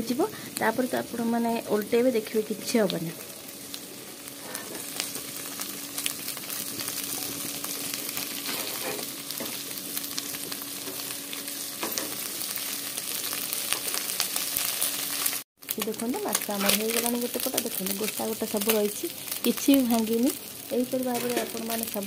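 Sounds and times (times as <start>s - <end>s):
fish sizzling in hot oil: 0.0s - 22.0s
wooden spatula scraping: 8.4s - 9.1s.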